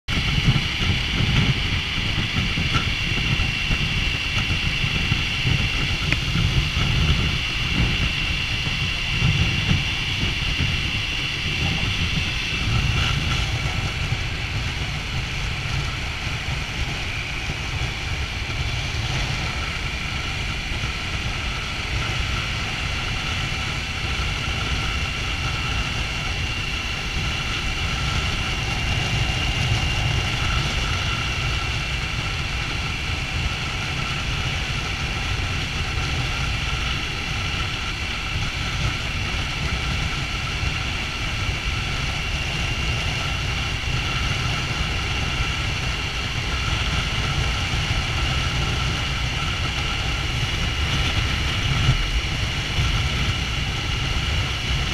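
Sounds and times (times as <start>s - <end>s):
motorcycle engine rumbling: 0.1s - 33.2s.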